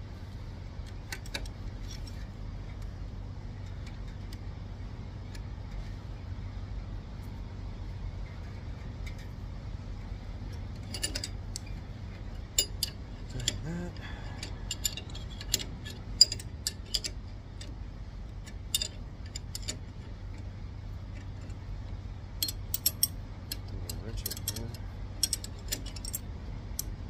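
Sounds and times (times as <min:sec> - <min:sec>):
low hum: 0:00.0 - 0:27.0
metal wrenches clinking: 0:10.8 - 0:17.7, 0:18.4 - 0:19.9, 0:22.4 - 0:26.3.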